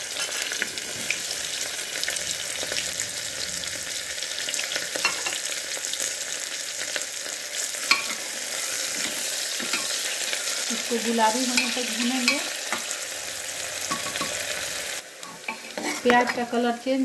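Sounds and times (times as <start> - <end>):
onions sizzling in hot oil: 0.0 - 17.0
metal spoon stirring: 7.8 - 10.7, 11.4 - 12.9, 15.2 - 16.4.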